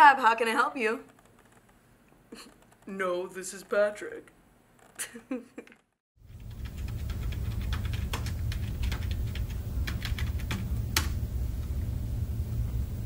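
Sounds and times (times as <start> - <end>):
steady low hum: 6.2 - 13.0.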